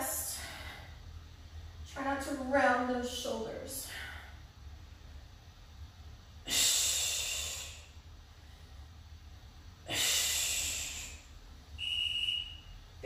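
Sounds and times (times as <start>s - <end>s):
woman exhaling forcefully: 6.4s - 8.0s, 9.9s - 11.3s.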